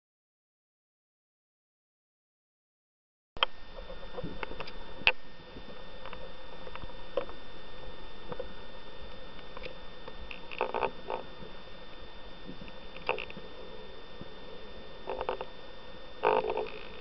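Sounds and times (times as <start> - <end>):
underwater clicks and crackles: 3.4 - 7.5, 8.2 - 15.6, 16.2 - 17.0
faint high whine: 3.4 - 17.0.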